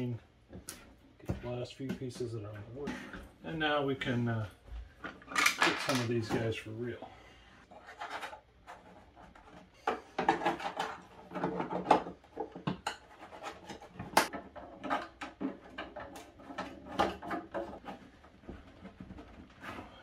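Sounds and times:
plastic parts clicking and rattling: 5.0 - 6.4, 7.9 - 20.0.

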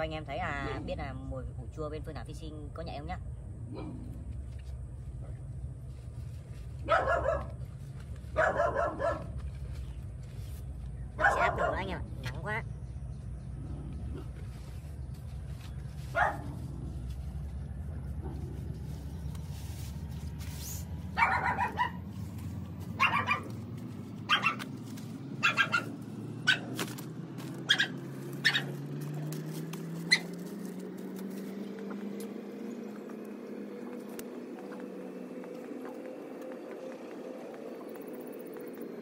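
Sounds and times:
dog barking: 6.8 - 7.6, 8.3 - 9.4, 11.2 - 12.0, 16.1 - 16.7, 21.2 - 22.1, 23.0 - 23.6, 24.3 - 24.7, 25.4 - 26.8, 27.6 - 28.9, 30.0 - 30.3
low drone rising in pitch: 12.0 - 39.0.

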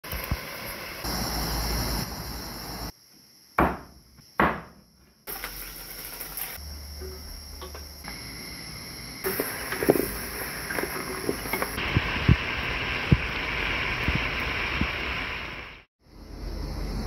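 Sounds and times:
crickets chirring: 0.1 - 13.0, 16.0 - 17.0
sharp knocks: 3.6 - 4.8.

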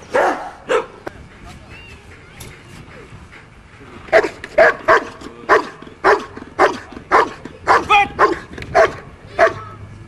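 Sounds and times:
dog barking loudly: 0.1 - 1.0, 4.1 - 9.6.

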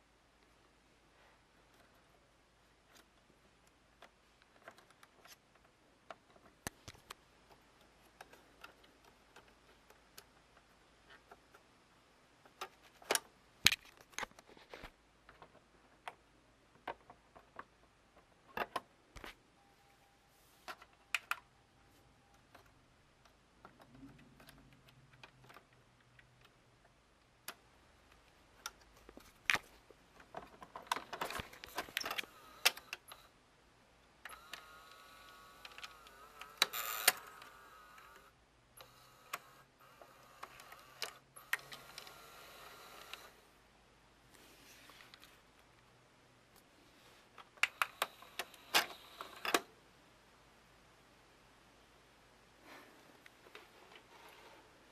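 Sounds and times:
plastic mechanism clicking: 34.2 - 43.3.

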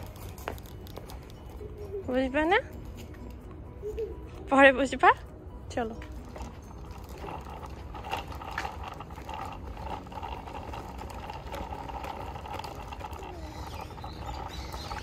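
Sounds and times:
bicycle wheels whirring: 6.4 - 15.0.

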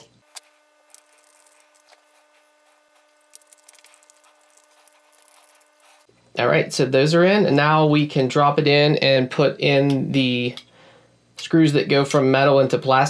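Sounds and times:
screwdriver clicks and scrapes: 0.3 - 6.1.

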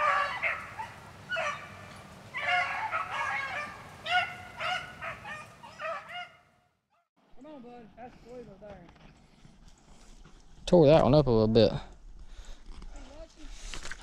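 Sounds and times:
hounds baying: 0.0 - 6.6.

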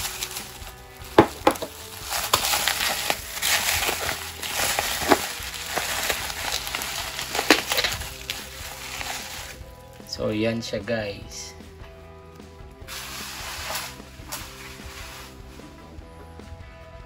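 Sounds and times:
bubble wrap snapping: 0.0 - 10.1, 12.9 - 15.6
bubble wrap crinkling: 0.0 - 10.2, 12.9 - 15.8.

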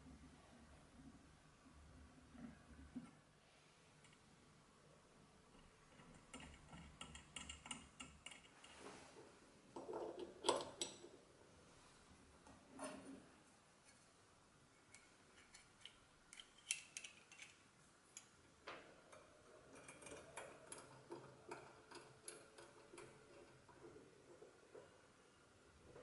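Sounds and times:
small metal parts clicking: 14.9 - 17.6.

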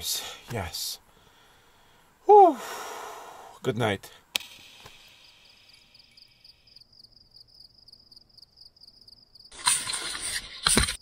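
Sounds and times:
cricket trilling: 4.8 - 10.4.

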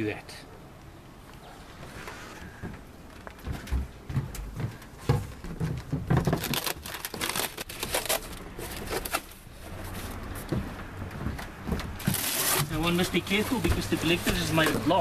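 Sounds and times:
cardboard crinkling: 5.9 - 10.2
packing tape ripping: 6.2 - 9.3, 12.0 - 12.8.

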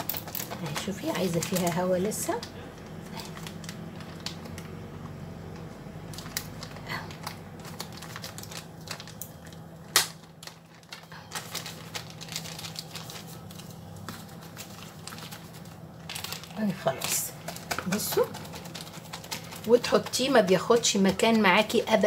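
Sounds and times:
plastic bag crinkling: 0.0 - 22.0.

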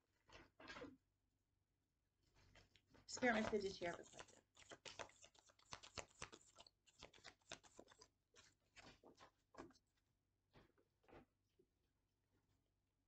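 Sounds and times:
cards being shuffled: 3.3 - 9.8.

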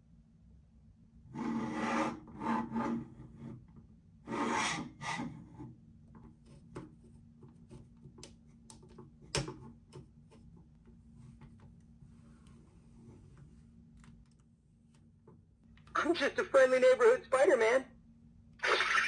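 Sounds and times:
small clicks and taps: 6.2 - 10.1.

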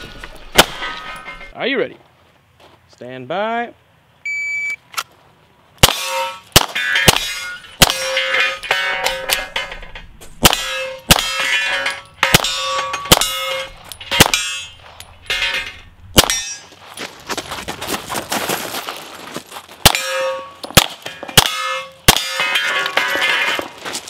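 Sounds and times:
pistol shots: 5.8 - 8.3
short metallic ring: 6.0 - 16.8, 19.9 - 23.8.

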